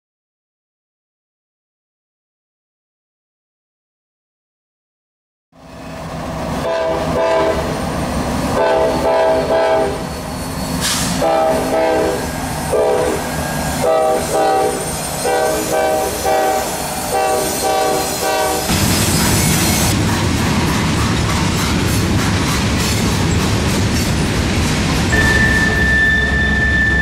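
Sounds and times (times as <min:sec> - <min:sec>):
locomotive air horn blasts: 0:06.6 - 0:07.8, 0:08.6 - 0:10.1, 0:11.0 - 0:13.2, 0:13.8 - 0:18.7, 0:25.1 - 0:27.0.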